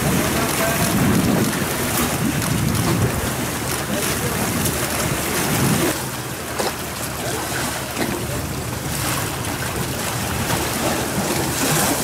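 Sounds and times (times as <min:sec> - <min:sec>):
wind buffeting microphone: 0:00.0 - 0:06.0
sea washing against pier: 0:00.0 - 0:12.0.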